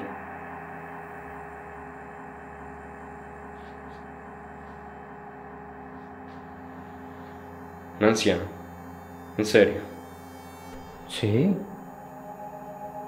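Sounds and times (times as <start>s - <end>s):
steady hum of held tones: 0.0s - 13.0s.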